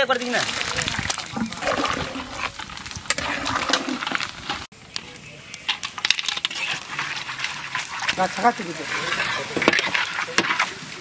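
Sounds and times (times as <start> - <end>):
liquid splashing and bubbling: 0.0 - 4.7
pan clattering: 0.2 - 4.7, 5.7 - 10.8.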